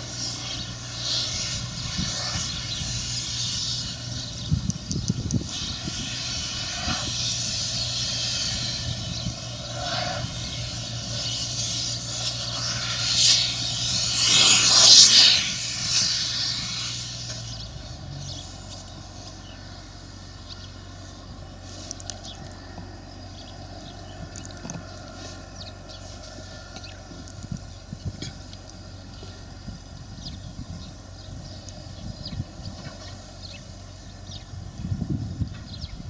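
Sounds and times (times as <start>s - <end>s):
rushing noise: 0.0s - 19.7s
farm vehicle engine humming: 0.0s - 36.0s.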